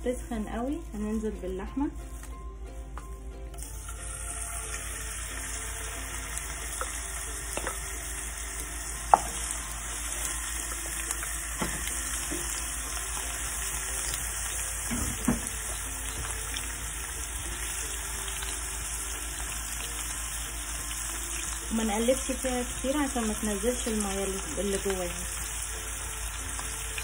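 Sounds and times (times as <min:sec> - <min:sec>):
beef sizzling in a frying pan: 0:03.6 - 0:27.0
wooden spoon knocking on pan: 0:09.1 - 0:09.5.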